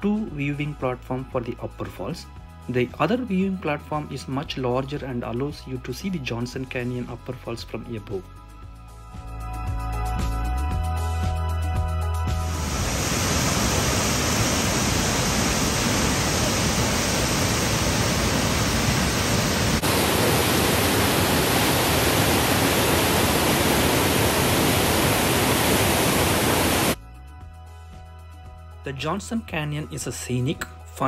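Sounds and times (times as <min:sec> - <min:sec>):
waterfall rushing: 0:12.5 - 0:27.0.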